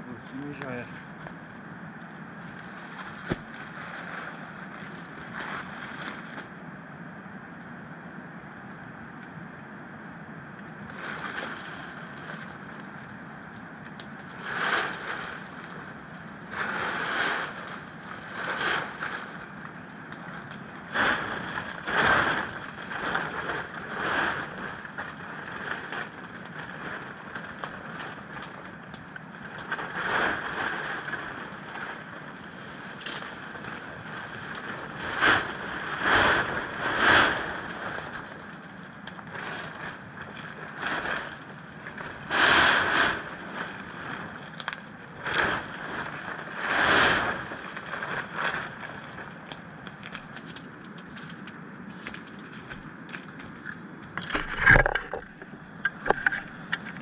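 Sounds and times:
plastic tarp rustling: 2.4s - 6.6s, 10.8s - 12.8s, 14.3s - 55.5s
river rushing: 14.4s - 27.1s, 29.6s - 41.2s.

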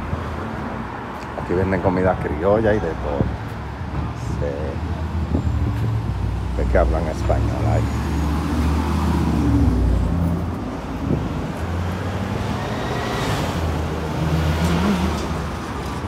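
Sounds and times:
vehicle passing: 5.1s - 16.0s.

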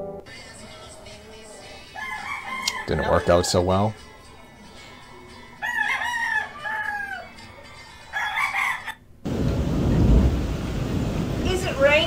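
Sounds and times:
rooster crowing: 0.5s - 9.0s.

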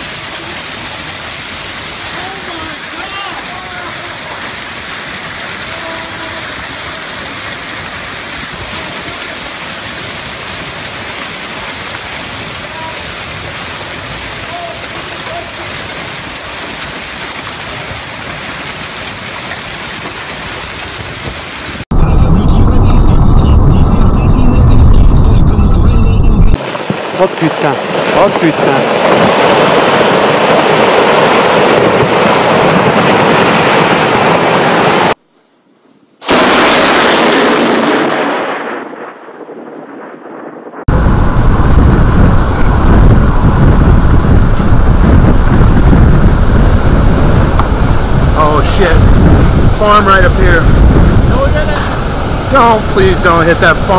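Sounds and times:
hail and heavy rain pelting pavement: 0.0s - 21.8s, 26.6s - 35.1s, 44.8s - 53.9s
rockfall rushing rumble: 0.0s - 35.2s, 40.8s - 53.9s.

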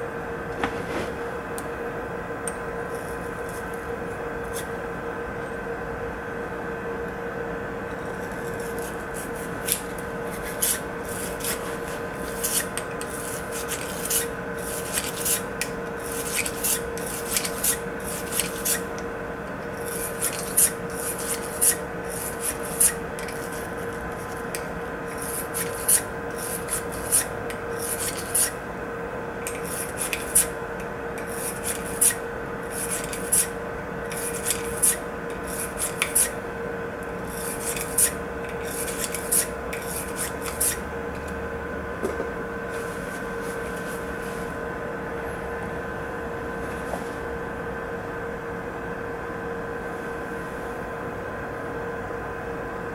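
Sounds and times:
steady hum: 0.0s - 52.9s
cleaning rod scraping in barrel: 0.6s - 1.2s.

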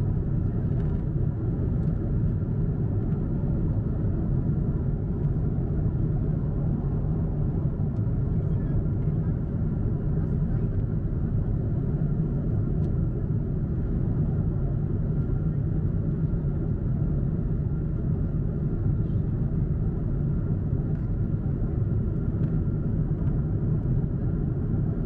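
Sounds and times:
airplane cabin rumble: 0.0s - 25.0s.

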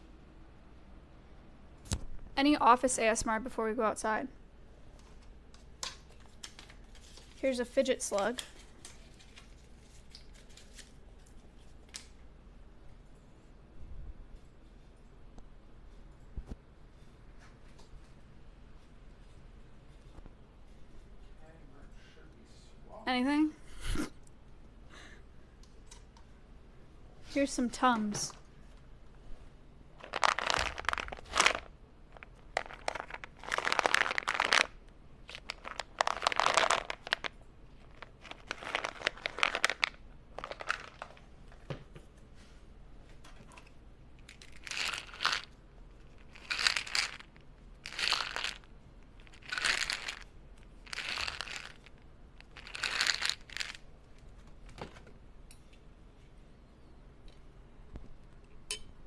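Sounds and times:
tablets handled near microphone: 30.0s - 34.7s.

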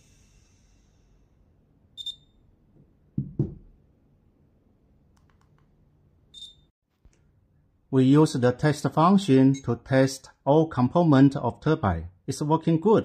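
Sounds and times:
short high beep: 2.0s - 2.4s, 6.4s - 6.7s
knocks on a table: 3.2s - 3.7s.

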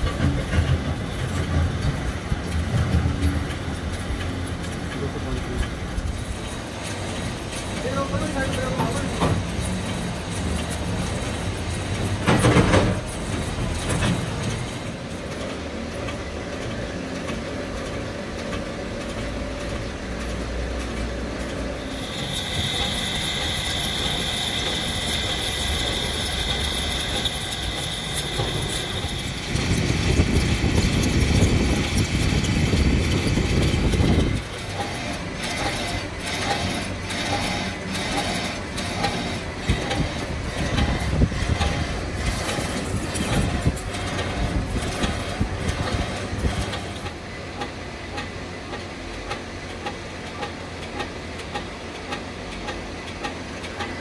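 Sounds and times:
lathe cutting steel: 0.0s - 48.2s
high whine: 18.6s - 47.4s.

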